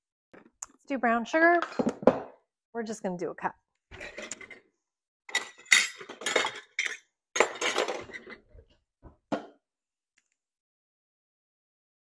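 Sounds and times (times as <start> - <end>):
utensils clinking against dishes: 5.3 - 8.4.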